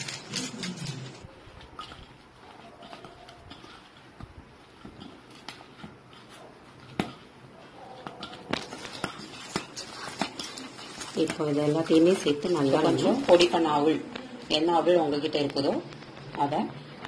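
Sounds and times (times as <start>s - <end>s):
hand squelching mashed potato: 1.2s - 14.7s.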